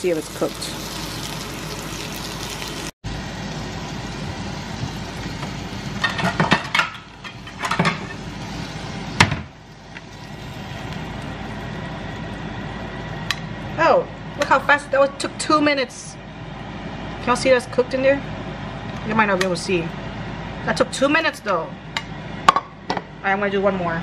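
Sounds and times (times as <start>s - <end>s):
sausage sizzling: 0.0s - 13.8s.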